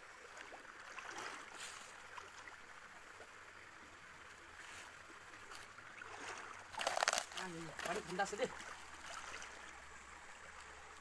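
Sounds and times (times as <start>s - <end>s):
light water splashes: 0.0s - 11.0s
shallow stream flowing over rocks: 0.0s - 11.0s.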